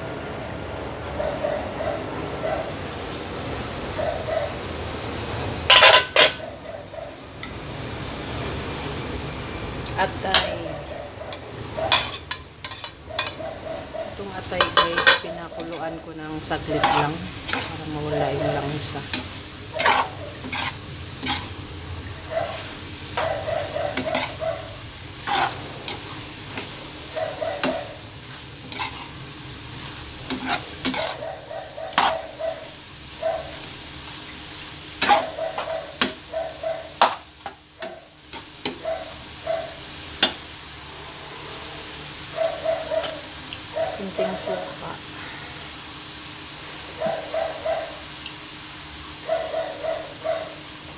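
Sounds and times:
meat sizzling: 0:02.6 - 0:50.9
metal spoon scraping a frying pan: 0:05.7 - 0:06.4, 0:10.2 - 0:21.7, 0:22.4 - 0:32.7, 0:35.0 - 0:36.3, 0:36.9 - 0:38.8.

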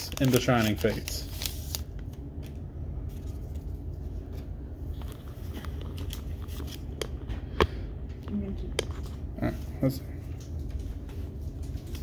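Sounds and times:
cards clicking and rustling: 0:00.0 - 0:07.7
low background hum: 0:00.0 - 0:12.0.

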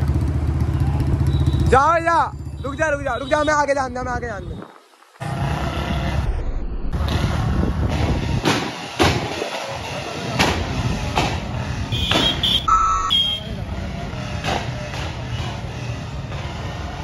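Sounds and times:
motorcycle engine rumbling: 0:09.6 - 0:17.0
sharp exhaust pops: 0:10.4 - 0:12.7.

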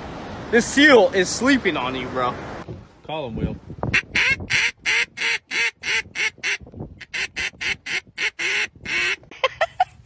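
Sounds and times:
duck call quacks: 0:03.9 - 0:09.3.

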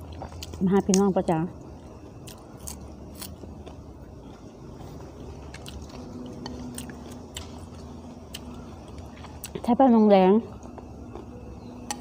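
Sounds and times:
person chewing: 0:00.0 - 0:01.0, 0:02.2 - 0:09.7.

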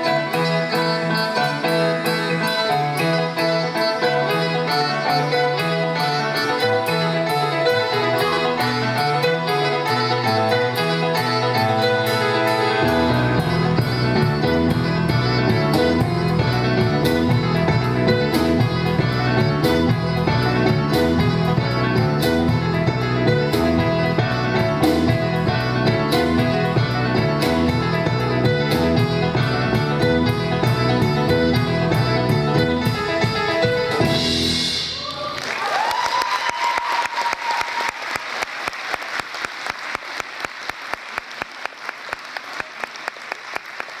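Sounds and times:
jazz trio playing: 0:00.0 - 0:35.0
audience applause: 0:35.0 - 0:44.0
rhythmic clapping in unison: 0:35.4 - 0:44.0.

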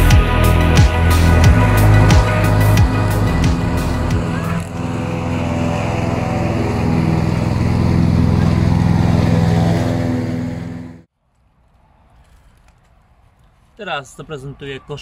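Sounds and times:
ride-on mower engine running: 0:00.0 - 0:11.1.

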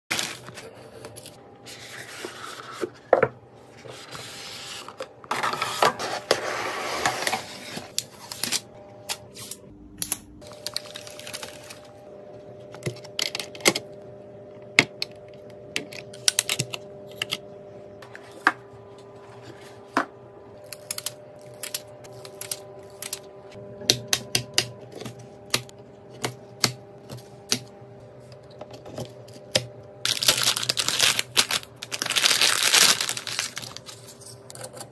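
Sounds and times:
plastic bag crinkling: 0:30.1 - 0:34.2.

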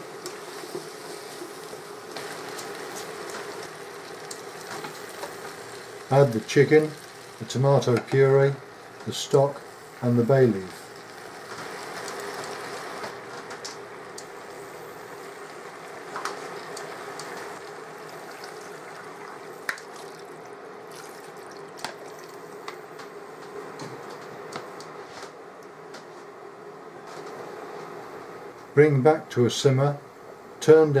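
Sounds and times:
stock pouring into hot pan: 0:15.2 - 0:22.4.

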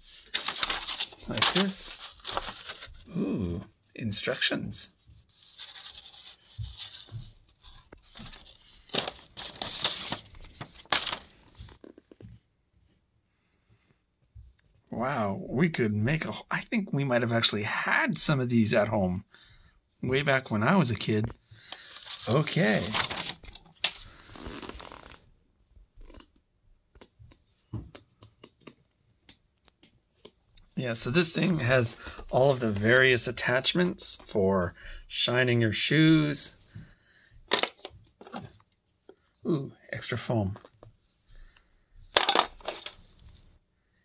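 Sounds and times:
paper rustling and crinkling: 0:00.0 - 0:03.1, 0:05.1 - 0:12.2, 0:21.7 - 0:25.2, 0:42.1 - 0:43.5.

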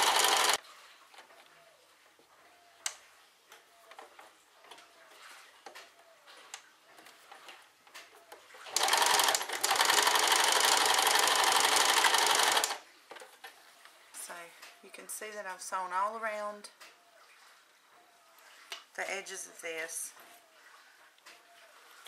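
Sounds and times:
sewing machine stitching: 0:00.0 - 0:00.6, 0:08.7 - 0:12.8.

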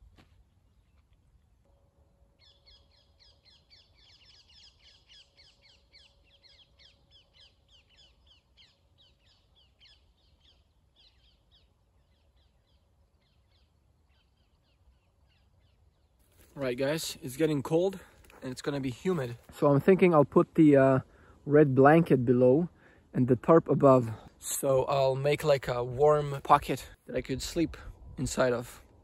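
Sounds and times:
birds chirping rapidly: 0:02.4 - 0:19.5.

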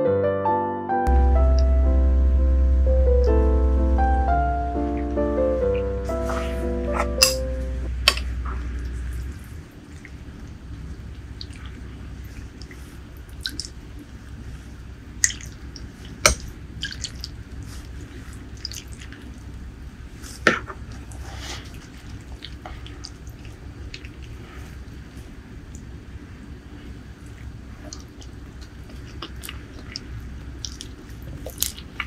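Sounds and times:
soup dripping and splashing: 0:09.9 - 0:13.9, 0:15.2 - 0:19.6.

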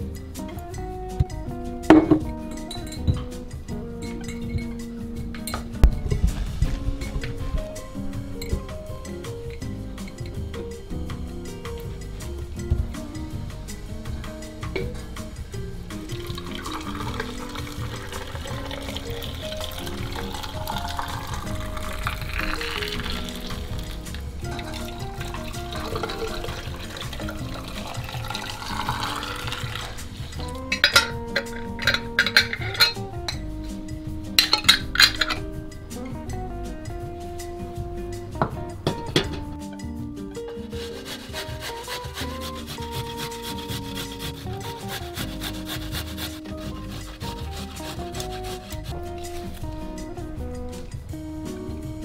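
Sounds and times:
background music: 0:00.0 - 0:52.0
water pouring into glass jar: 0:16.2 - 0:33.0
garlic grating on metal grater: 0:40.6 - 0:49.6.

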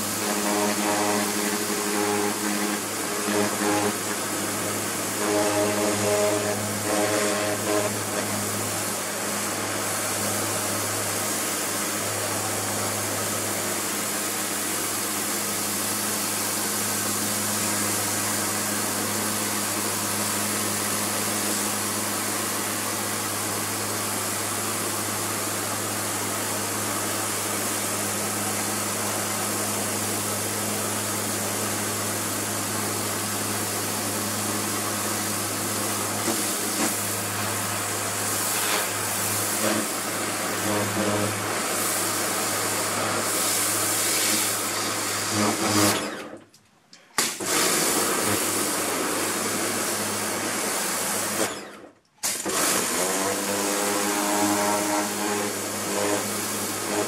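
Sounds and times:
pressure washer humming: 0:00.0 - 0:46.5, 0:47.2 - 0:57.0
water jet spattering on plastic: 0:47.2 - 0:48.6.

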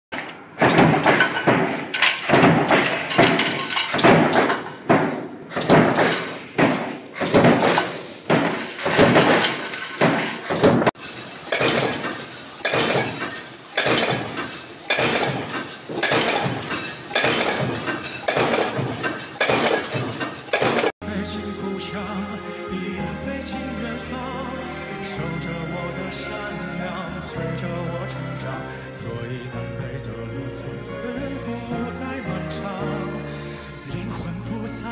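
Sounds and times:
stamping presses clanking: 0:00.1 - 0:21.0.

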